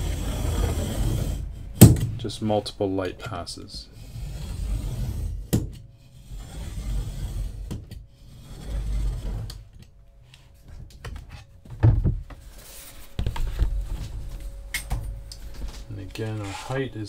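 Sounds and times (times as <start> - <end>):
utility knife scraping board: 0.0 - 1.9, 4.0 - 9.7.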